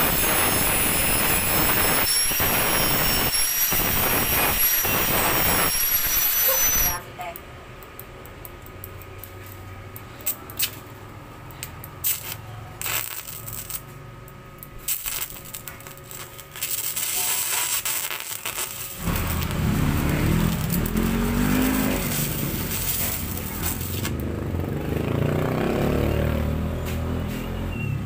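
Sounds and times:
welding arc crackling and hissing: 0:00.0 - 0:07.0, 0:11.9 - 0:14.0, 0:14.6 - 0:24.5.

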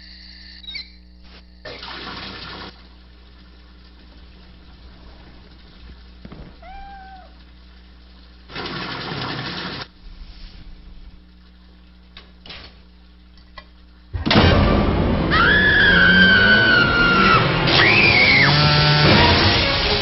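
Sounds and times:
tap water gushing: 0:01.6 - 0:10.0, 0:10.7 - 0:14.6
low hum: 0:02.7 - 0:08.5, 0:09.9 - 0:18.3
short pitched cry: 0:06.5 - 0:07.4.

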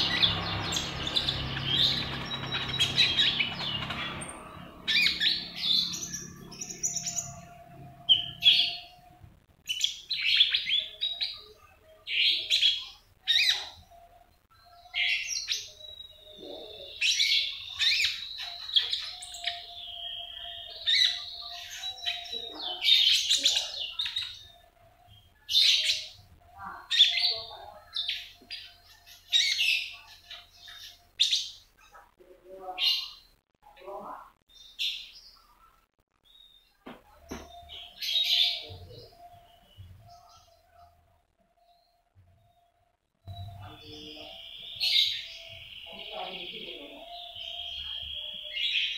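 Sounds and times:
songbird chirping and twittering: 0:00.0 - 0:48.9.

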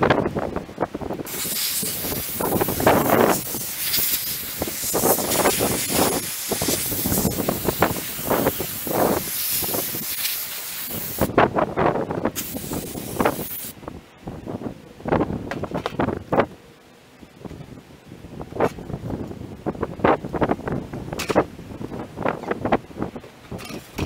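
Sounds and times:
sandblaster hissing: 0:01.2 - 0:11.3, 0:12.4 - 0:13.8.

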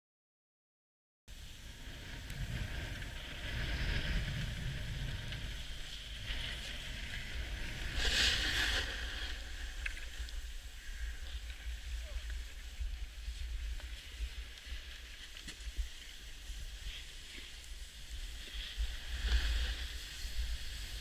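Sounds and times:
snowboard scraping over snow: 0:01.3 - 0:21.0.

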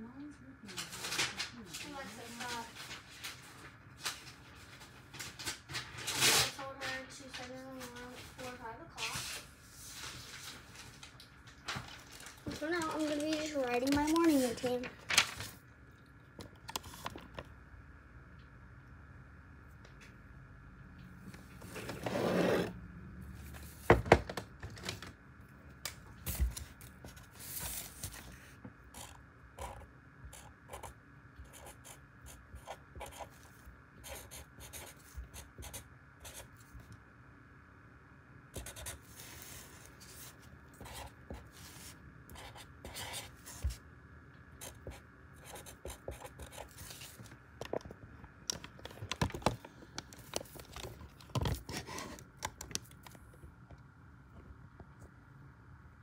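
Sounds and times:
pen scratching on paper: 0:31.5 - 0:36.5, 0:38.6 - 0:39.6, 0:40.2 - 0:43.8, 0:44.6 - 0:47.2.

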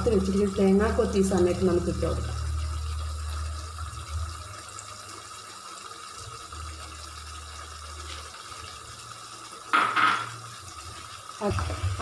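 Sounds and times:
curry bubbling in a pan: 0:00.0 - 0:12.0.

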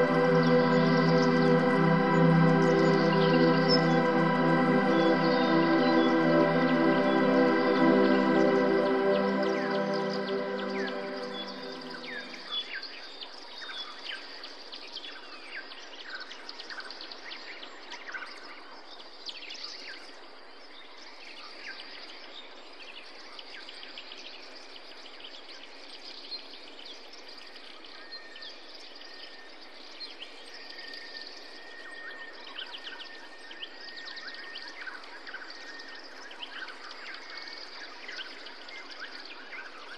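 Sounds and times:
birds chirping: 0:00.0 - 0:12.5.

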